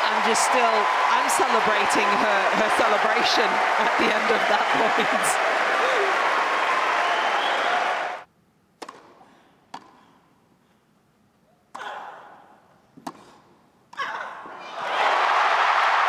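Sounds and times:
crowd cheering and applauding: 0.0 - 8.3, 14.7 - 16.0
racquets striking tennis ball: 8.8 - 10.2, 13.0 - 13.6.

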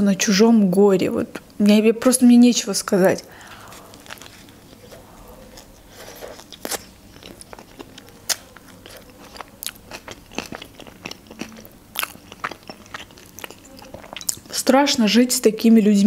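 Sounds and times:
chewing with crunches: 3.4 - 14.7
biting into food: 3.8 - 14.6.

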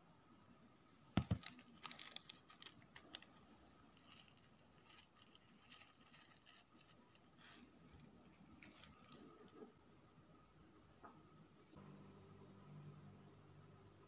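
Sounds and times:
plastic bag crinkling: 1.2 - 3.4, 4.0 - 7.2.

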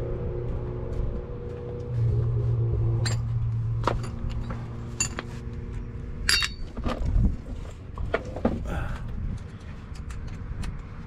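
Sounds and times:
metal parts clinking: 3.0 - 5.3, 6.2 - 7.1.

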